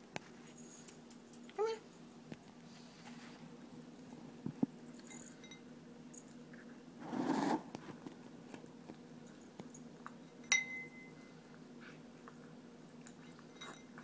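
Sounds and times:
food scraping in bowl: 7.0 - 7.9
sharp clink on bowl: 10.4 - 11.3, 13.5 - 14.0.

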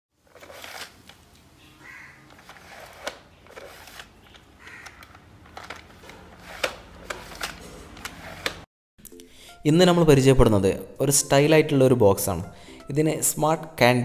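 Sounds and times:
plastic trays rustling and clicking: 2.2 - 8.7.

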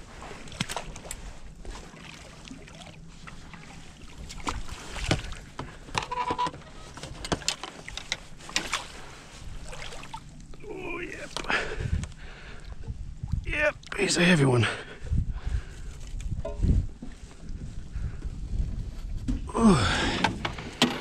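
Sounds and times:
fishing gear knocking and rattling: 5.2 - 8.8
wind rumble on microphone: 11.5 - 13.9, 14.7 - 21.0.

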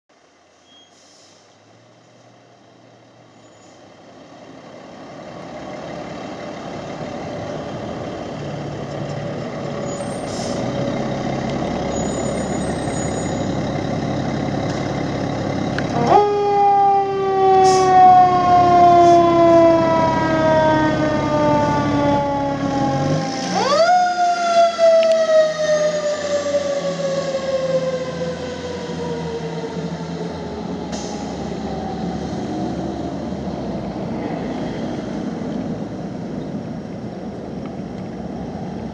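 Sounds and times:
fire engine diesel engine: 0.1 - 38.9
mechanical siren wailing: 15.6 - 32.3.

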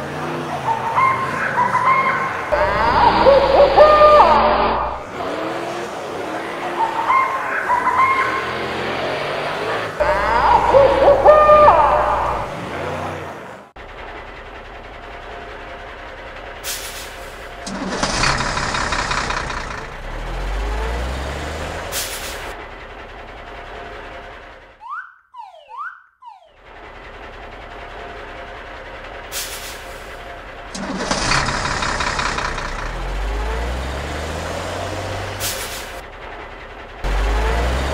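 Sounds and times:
cartoon truck engines revving: 0.0 - 37.9
air-brake hisses: 16.6 - 18.7, 21.8 - 22.5, 29.3 - 30.2, 35.3 - 36.0.

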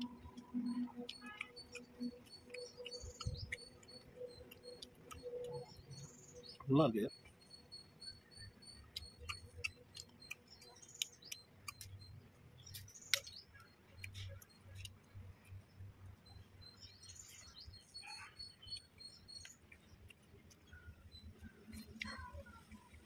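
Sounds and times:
wet chewing smacks: 0.0 - 6.0, 8.2 - 15.6
bird chirping: 0.0 - 23.0.

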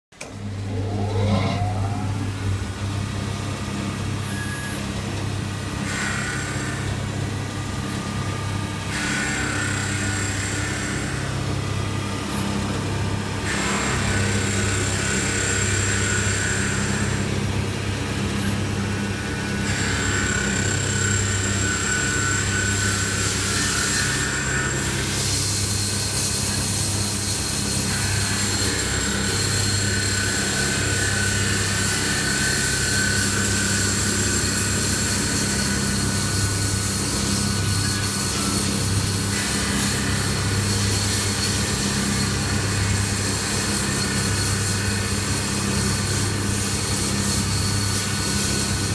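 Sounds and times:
lathe low hum: 0.1 - 6.7
cutting tool hiss and whine: 0.3 - 5.0, 13.4 - 48.9.

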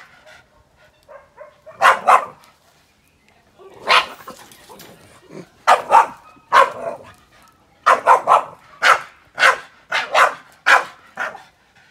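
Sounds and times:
dog barking: 1.1 - 2.4, 3.8 - 4.4, 5.6 - 7.1, 7.8 - 11.4.

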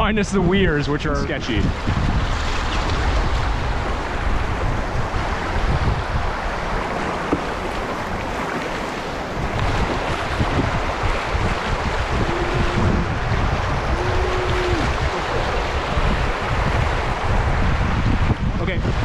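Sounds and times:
wind buffeting microphone: 0.0 - 19.0
river whitewater rushing: 5.1 - 18.0.

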